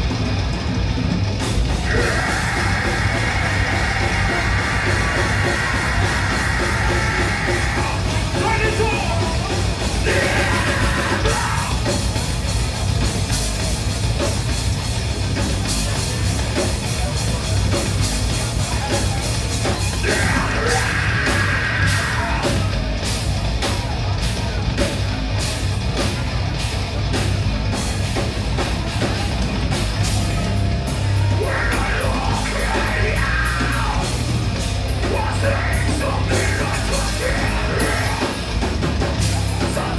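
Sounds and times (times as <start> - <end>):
heavy metal band playing: 0.0 - 39.9
vocalist yelling: 1.8 - 12.0, 19.9 - 22.8, 31.1 - 34.2, 35.0 - 38.5.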